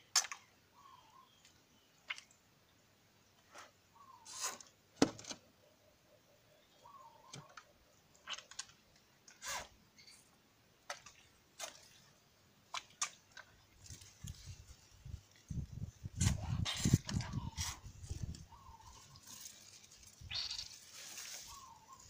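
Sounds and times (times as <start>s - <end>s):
leaves rustling against phone: 12.8s - 22.0s.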